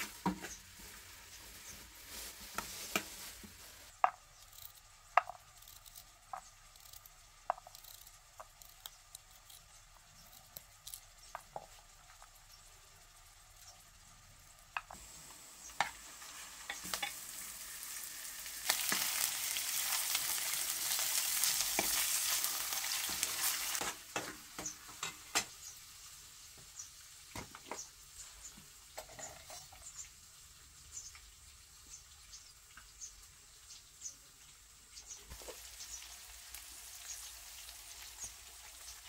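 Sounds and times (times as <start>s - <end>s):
meat sizzling in hot oil: 11.0s - 39.0s.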